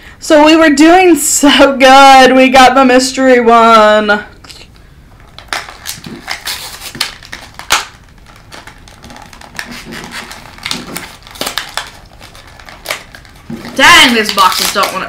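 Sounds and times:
cardboard box tearing open: 5.5 - 15.0.

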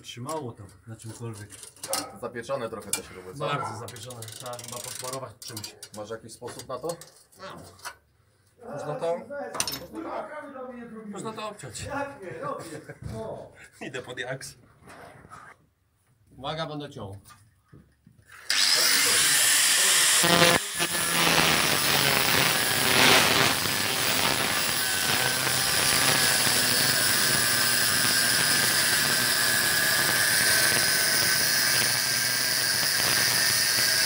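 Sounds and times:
angle grinder cutting metal: 18.4 - 34.0.

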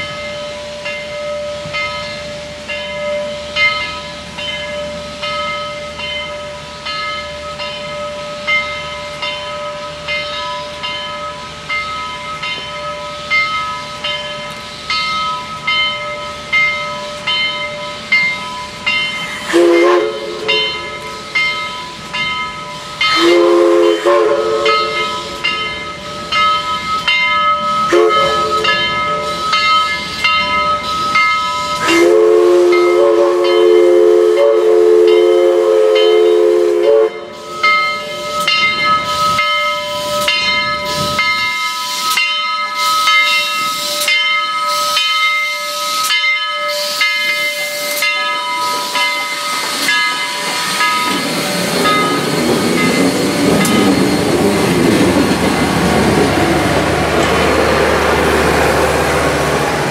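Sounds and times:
locomotive bell ringing: 0.0 - 59.9
steam hissing: 0.0 - 59.9
steam whistle blasts: 19.4 - 20.9, 23.1 - 25.5, 27.8 - 29.6, 30.9 - 40.3
locomotive running gear: 48.6 - 59.9.

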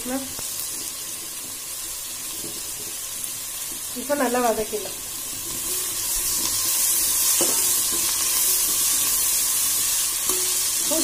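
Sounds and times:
vegetables sizzling in oil: 0.0 - 11.0
metal spatula stirring: 5.2 - 11.0.

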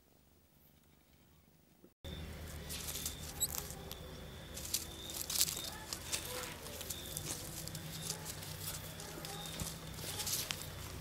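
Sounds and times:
high chirps: 2.1 - 6.2
rustling grass: 2.2 - 11.0.

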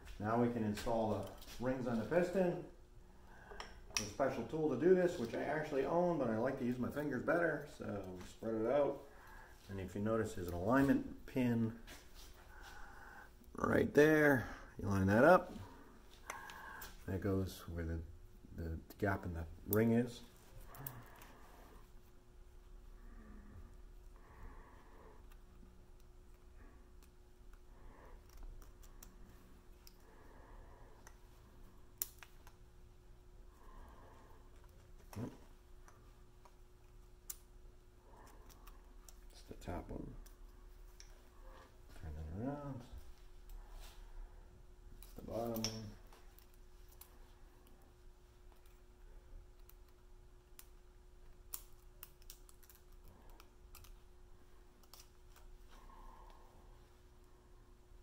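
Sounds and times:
small metallic clicks: 49.6 - 54.0.

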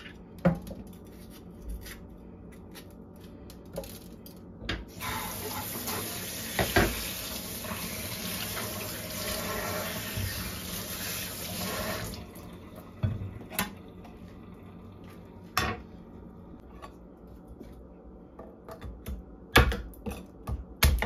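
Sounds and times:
faucet running into steel sink: 4.9 - 12.9.

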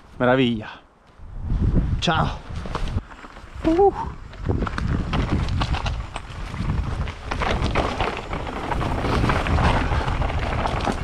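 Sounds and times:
wind rumble on microphone: 1.2 - 11.0
bike tyres rattling on stones: 2.5 - 11.0.

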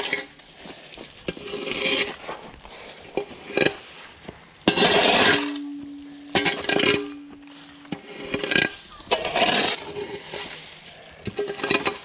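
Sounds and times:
shovel scraping on asphalt: 0.0 - 12.0
steady low tone: 5.4 - 8.9.

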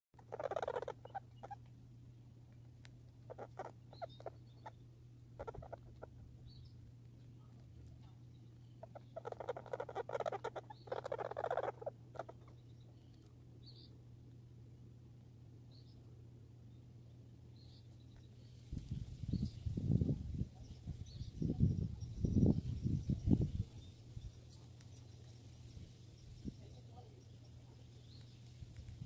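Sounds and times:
squirrel chattering clicks: 0.2 - 1.7, 2.8 - 4.8, 5.4 - 6.1, 8.8 - 13.2
steady low hum: 0.2 - 29.0
faint high chirps: 17.5 - 29.0.

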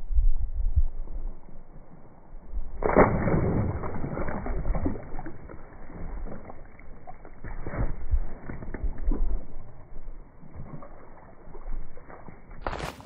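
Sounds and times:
footsteps on gravel: 12.6 - 13.0.

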